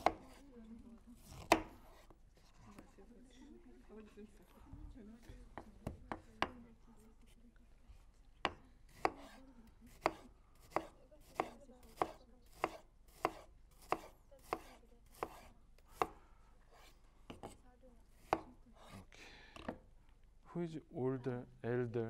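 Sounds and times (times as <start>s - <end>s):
knife slicing onto wooden board: 8.9s - 17.6s.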